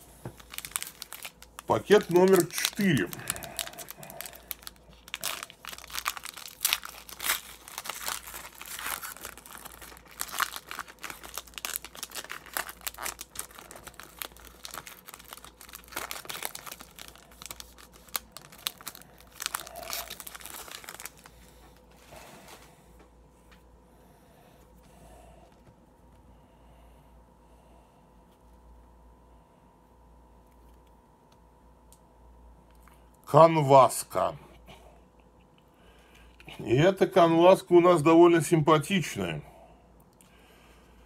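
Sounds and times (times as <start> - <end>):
foil wrapper crinkling: 0.2 - 22.6.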